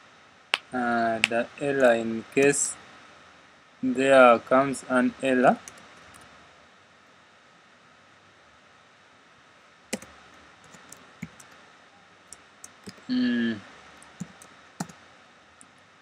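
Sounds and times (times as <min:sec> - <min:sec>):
person humming: 0:13.1 - 0:13.6.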